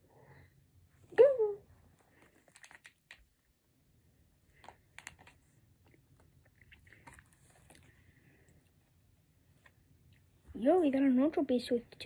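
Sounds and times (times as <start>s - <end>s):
cards and paper crinkling: 2.0s - 3.4s, 4.5s - 8.0s.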